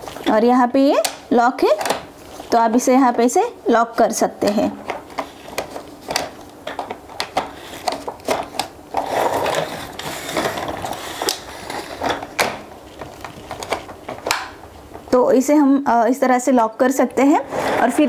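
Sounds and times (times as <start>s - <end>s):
plastic rustling and scraping: 0.0s - 0.4s, 4.8s - 15.2s, 17.3s - 18.0s
plastic clicks and rattles: 4.4s - 14.6s.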